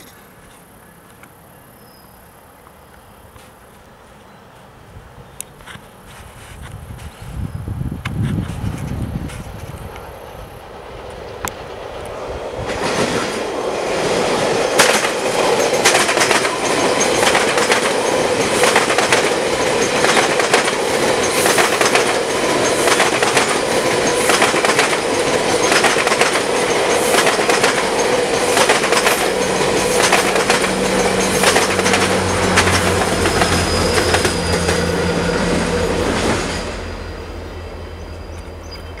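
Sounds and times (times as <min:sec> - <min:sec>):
train wheels rushing on rails: 0:06.1 - 0:39.0
locomotive engine drone: 0:08.6 - 0:39.0.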